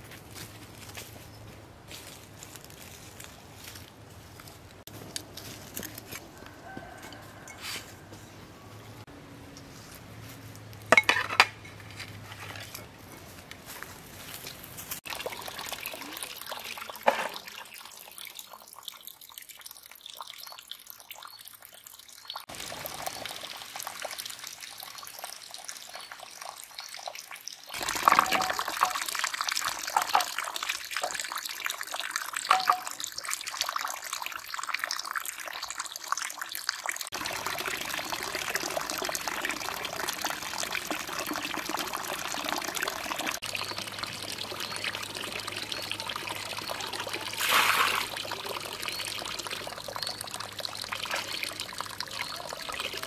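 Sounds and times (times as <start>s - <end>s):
water pouring into stone trough: 15.0s - 53.0s.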